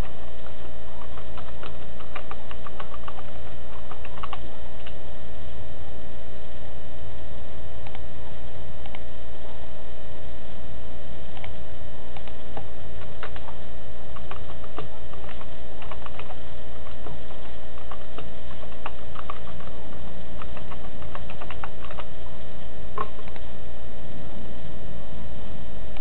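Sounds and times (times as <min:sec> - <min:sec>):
steady hum with low rumble: 0:00.0 - 0:26.0
keyboard typing clicks: 0:01.0 - 0:05.0, 0:12.2 - 0:13.6, 0:14.2 - 0:22.1.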